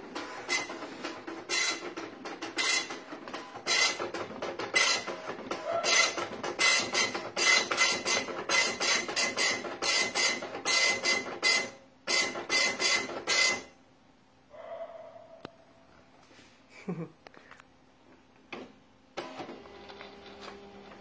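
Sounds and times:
dot-matrix printer buzzing: 0:00.0 - 0:13.8, 0:19.2 - 0:21.0.

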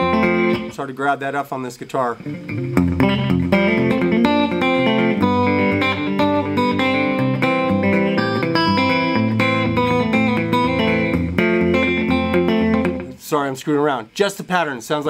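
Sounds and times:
fingerpicked electric guitar: 0:00.0 - 0:00.9, 0:02.2 - 0:13.2.

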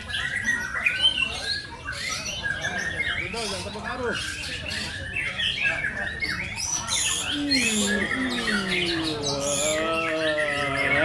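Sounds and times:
birds whistling and chirping: 0:00.0 - 0:11.0
people's drawn-out calls: 0:06.9 - 0:11.0.

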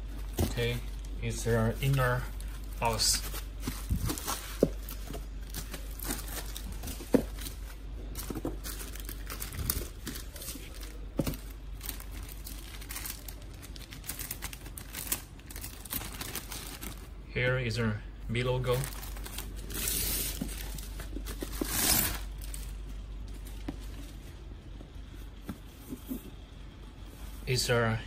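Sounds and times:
plastic wrap crinkling and tearing: 0:00.5 - 0:17.1, 0:18.7 - 0:23.7.

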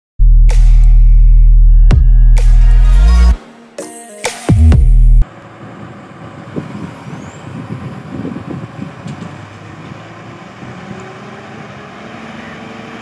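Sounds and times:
excavator diesel engine rumbling: 0:05.2 - 0:13.0.

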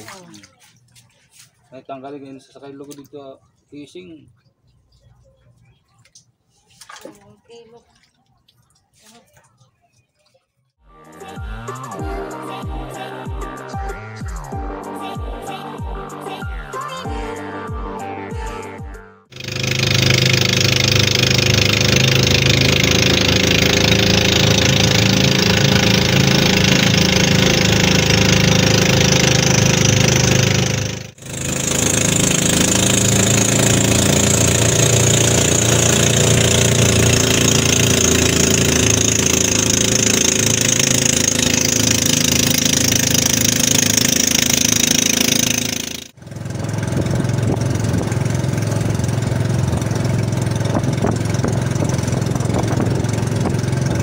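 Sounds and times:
boat engine running: 0:19.3 - 0:54.0
water rushing: 0:19.4 - 0:45.8.

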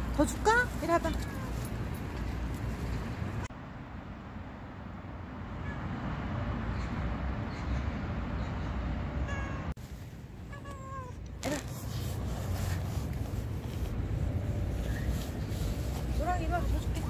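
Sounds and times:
cat meowing: 0:09.2 - 0:09.7, 0:10.5 - 0:11.7.

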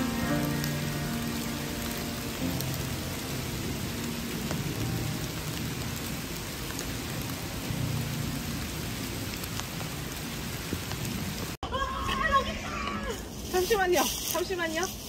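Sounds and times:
thunder rumbling: 0:00.0 - 0:11.6
steady rain falling: 0:00.0 - 0:15.0.

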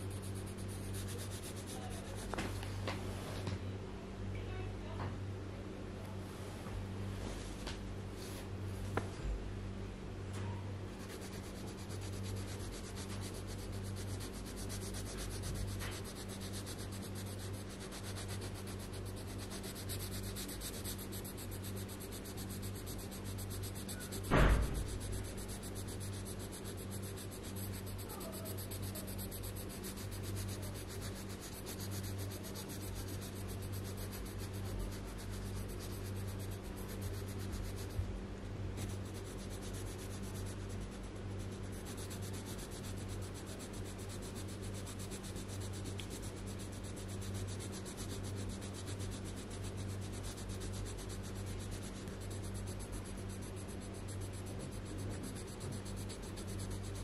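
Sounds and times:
pencil scratching on paper: 0:00.0 - 0:02.6, 0:10.9 - 0:38.1, 0:38.8 - 0:57.0
steady low hum: 0:00.0 - 0:57.0
sharp knock: 0:24.3 - 0:25.0.

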